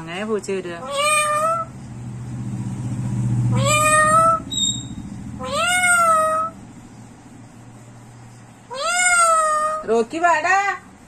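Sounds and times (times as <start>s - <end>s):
parrot giving cat-like meows: 0.8s - 1.7s, 3.5s - 4.5s, 5.4s - 6.6s, 8.7s - 9.9s.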